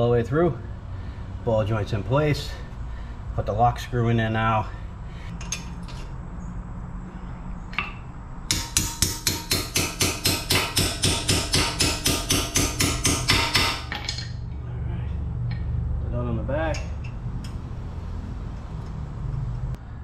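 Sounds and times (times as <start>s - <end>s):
hammer tapping on metal: 7.7s - 14.2s.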